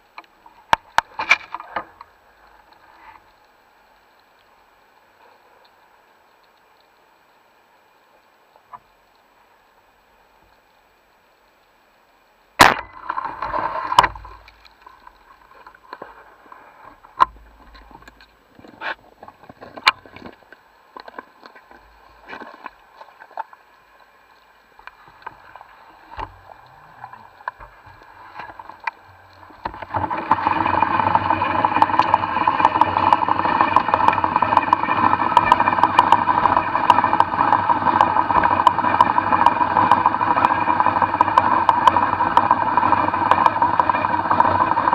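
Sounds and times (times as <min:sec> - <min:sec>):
faint clicks and knocks: 0:00.0 - 0:07.4, 0:10.0 - 0:44.9
boat engine drone underwater: 0:00.0 - 0:44.9
sharp underwater clicks: 0:17.0 - 0:44.9.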